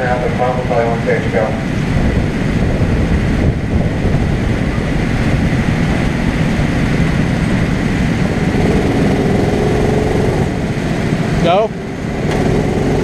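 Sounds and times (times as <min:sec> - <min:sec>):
go-kart engines idling: 0:07.2 - 0:13.0.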